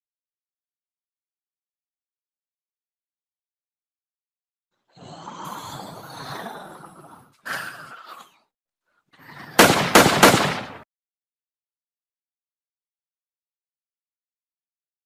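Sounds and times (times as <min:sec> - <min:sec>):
loud sharp bangs: 0:09.6 - 0:10.8.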